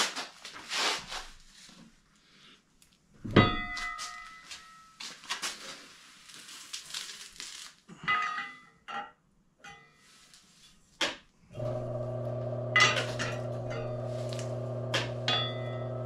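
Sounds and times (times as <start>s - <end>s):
metallic clang ringing: 15.0s - 16.0s
metal ringing clink: 15.3s - 16.0s.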